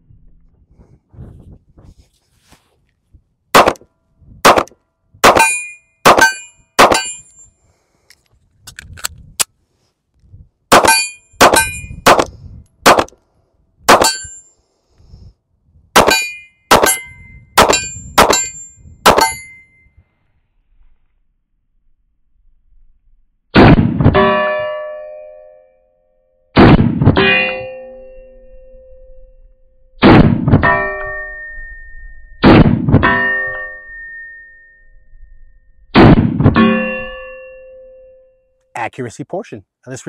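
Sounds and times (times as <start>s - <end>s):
pistol shots with metallic ring: 3.6s - 3.8s, 4.4s - 7.5s, 10.7s - 13.1s, 13.9s - 14.5s, 16.0s - 19.8s, 30.0s - 34.8s, 35.9s - 38.2s.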